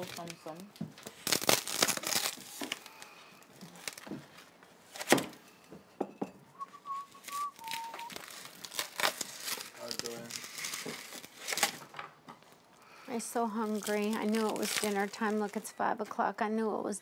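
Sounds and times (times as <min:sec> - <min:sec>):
person whistling two notes: 0:06.5 - 0:08.2.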